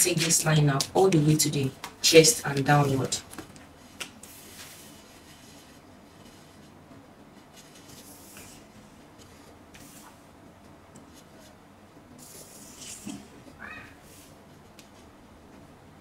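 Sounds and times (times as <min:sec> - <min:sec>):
marker pen scratching on paper: 0:03.8 - 0:10.2, 0:12.2 - 0:13.2.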